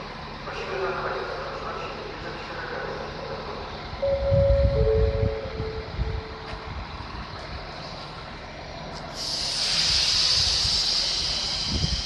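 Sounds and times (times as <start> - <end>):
train rumble: 0.0 - 12.0
train brakes hissing: 9.1 - 12.0.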